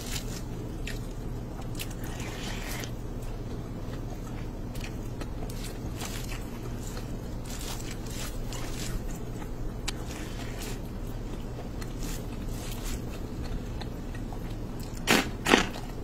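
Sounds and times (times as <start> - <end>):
steady low hum: 0.0 - 16.0
fingers squishing rice: 4.8 - 14.0.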